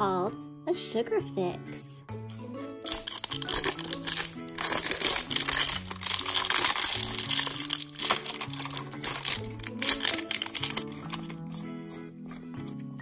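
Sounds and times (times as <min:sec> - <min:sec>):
background music: 0:00.0 - 0:13.0
packaging crinkling and tearing: 0:02.3 - 0:12.4.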